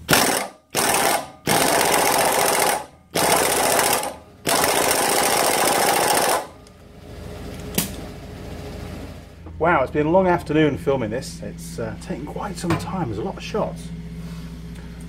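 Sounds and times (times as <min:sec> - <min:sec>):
impact wrench hammering: 0:00.0 - 0:06.6.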